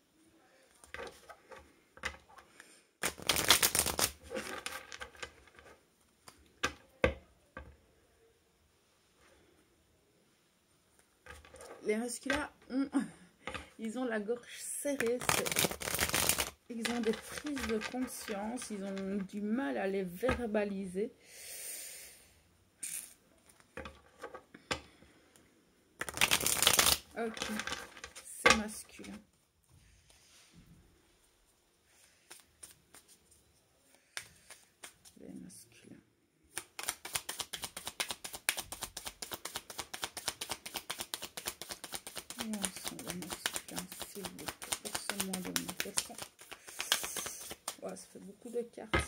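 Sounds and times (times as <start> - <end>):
cards sliding: 3.0 - 5.6, 15.0 - 19.1, 26.0 - 28.2, 32.3 - 33.2, 34.2 - 35.2, 36.5 - 47.8
cards being shuffled: 3.0 - 6.4, 14.9 - 19.4, 26.0 - 29.1, 32.2 - 35.2, 36.5 - 48.6.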